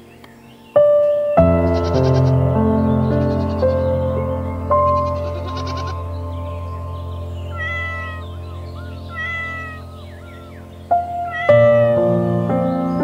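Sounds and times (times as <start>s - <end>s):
background music: 0.0s - 13.0s
kitten mewing: 7.5s - 8.2s, 9.1s - 9.9s, 11.1s - 12.0s.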